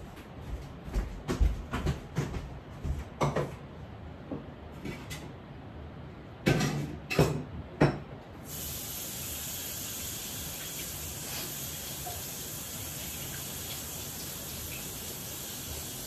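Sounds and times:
water running into a sink: 0:08.5 - 0:16.0.

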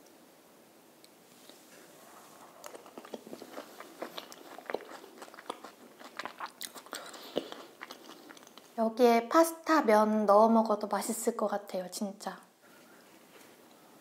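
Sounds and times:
chewing crispy food: 0:01.4 - 0:08.8
wet mouth clicks: 0:02.5 - 0:08.7.

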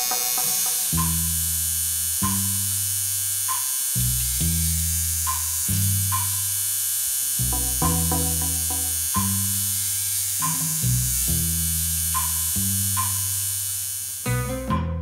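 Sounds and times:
tattoo machine buzzing: 0:00.0 - 0:14.7
background music of low notes: 0:07.4 - 0:11.6, 0:14.2 - 0:15.0.

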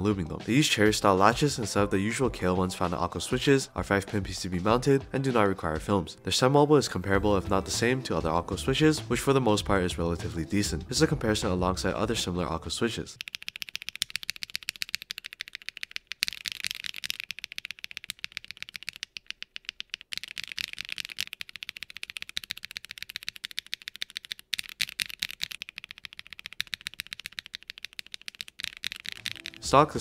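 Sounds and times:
mechanical keyboard key clacks: 0:13.2 - 0:29.7.

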